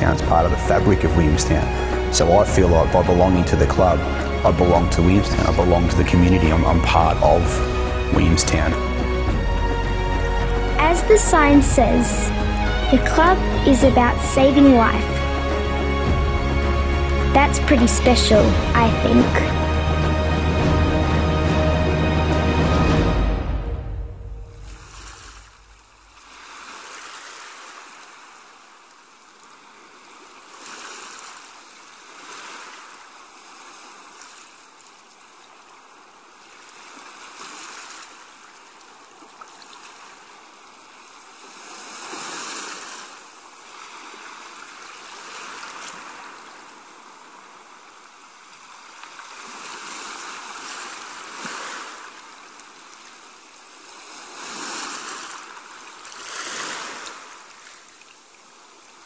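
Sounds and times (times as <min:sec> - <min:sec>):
small waves washing onto beach: 0:24.5 - 0:59.0.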